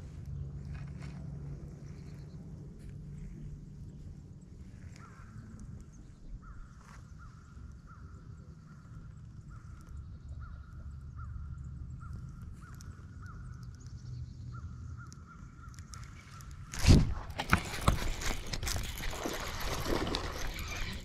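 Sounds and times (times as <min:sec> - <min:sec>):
fishing reel gear whir: 0:18.6 - 0:21.0.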